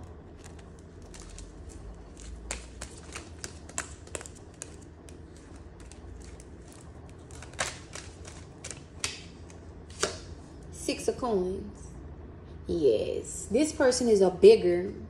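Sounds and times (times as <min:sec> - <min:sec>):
cards shuffling and clicking: 0:00.1 - 0:10.3.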